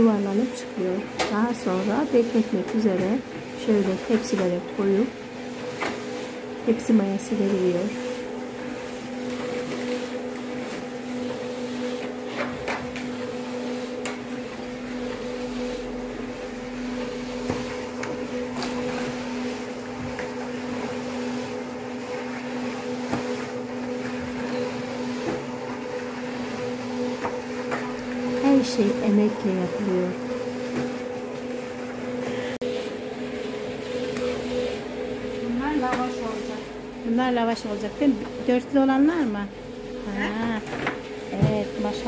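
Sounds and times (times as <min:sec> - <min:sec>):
electric motor hum: 0:00.0 - 0:42.0.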